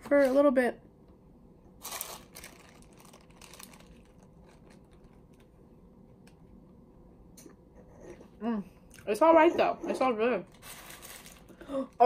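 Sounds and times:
paper wrapper crinkling: 1.8 - 5.6, 10.5 - 11.6.

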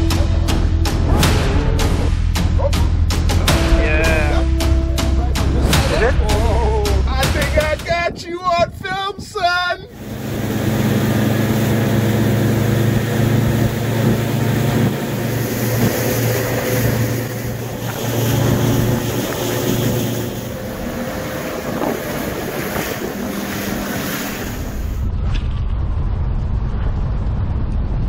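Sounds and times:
wind buffeting microphone: 3.5 - 28.0
outboard motor running: 9.9 - 25.1
water rushing past hull: 9.9 - 25.2.

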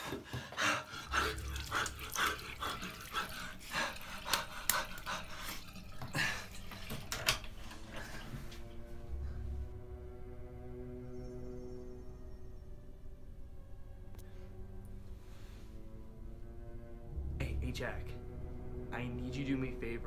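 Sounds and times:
man panting and groaning: 0.0 - 6.6
music: 0.0 - 20.0
water splashing: 1.1 - 8.2.

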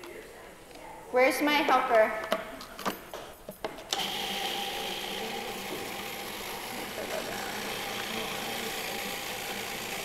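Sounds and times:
food processor motor running: 4.0 - 10.0.

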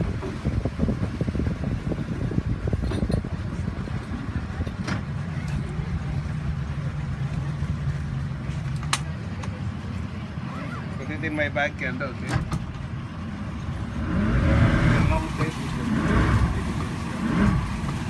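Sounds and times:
wind rumbling on microphone: 0.0 - 8.7
speedboat engine running: 0.0 - 18.0.

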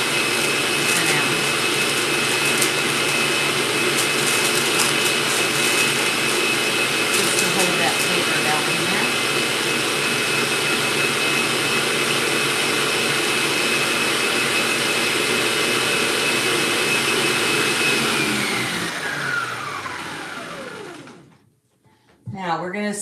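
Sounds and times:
stand mixer motor whining: 0.0 - 21.3.

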